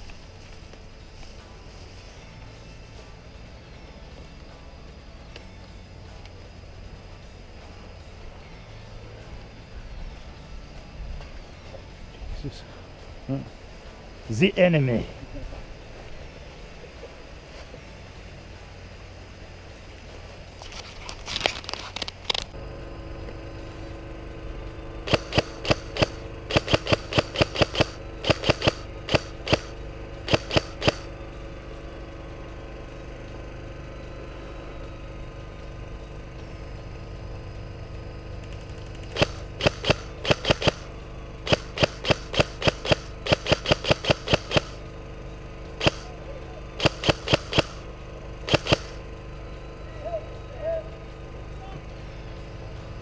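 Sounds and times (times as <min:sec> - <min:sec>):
airsoft rifle shots: 0:25.0 - 0:31.1, 0:39.1 - 0:44.8, 0:45.8 - 0:46.2, 0:46.8 - 0:47.8, 0:48.5 - 0:49.0.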